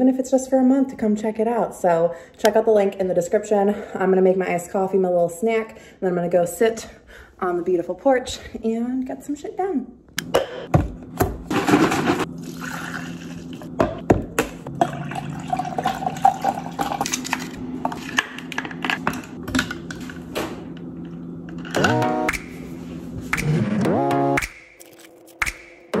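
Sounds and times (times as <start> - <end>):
liquid pouring into a glass: 12.4 - 13.6, 14.8 - 17.1
music: 21.8 - 22.6, 23.3 - 26.0.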